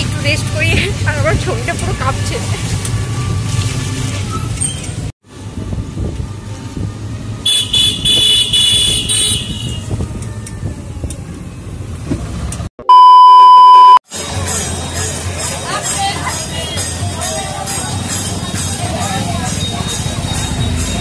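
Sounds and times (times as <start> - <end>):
road and rattle noise: 0.0 - 12.7, 14.1 - 21.0
loud electronic beep: 12.8 - 14.0.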